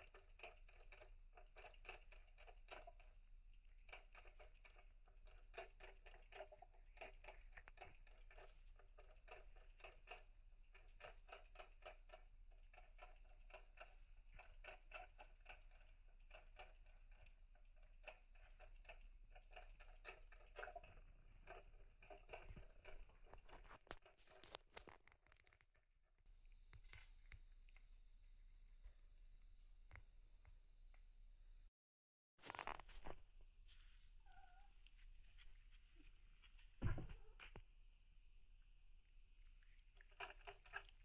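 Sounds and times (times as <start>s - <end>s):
cats clicking and rasping: 0.0s - 25.6s, 39.4s - 41.0s.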